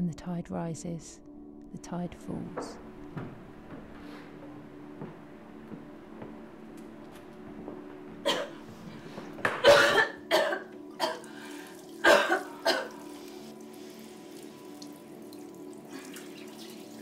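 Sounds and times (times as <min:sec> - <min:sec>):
low sustained musical tones: 0:00.0 - 0:17.0
person coughing: 0:08.2 - 0:08.7, 0:09.5 - 0:11.3, 0:12.0 - 0:13.0.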